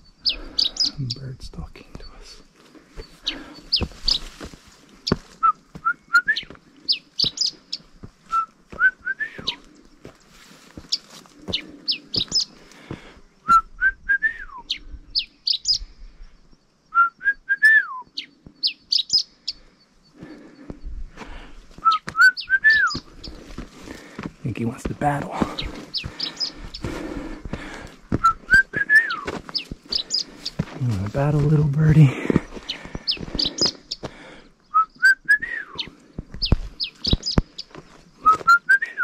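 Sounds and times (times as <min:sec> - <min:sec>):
person whistling: 0:05.4 - 0:06.6, 0:08.3 - 0:09.6, 0:13.5 - 0:14.6, 0:21.9 - 0:23.0, 0:28.2 - 0:29.3, 0:34.7 - 0:35.9, 0:38.2 - 0:39.0.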